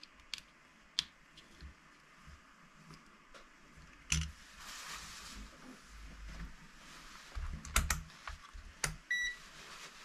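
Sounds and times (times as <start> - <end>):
sleeve rustling across bench: 4.4 - 7.6, 9.4 - 10.0.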